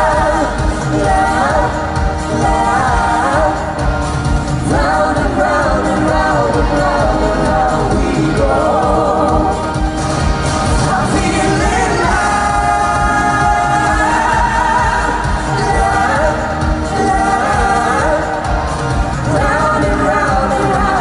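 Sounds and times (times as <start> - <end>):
man and woman singing duet: 0.0 - 10.0, 10.6 - 21.0
pop backing with steady beat: 0.0 - 21.0.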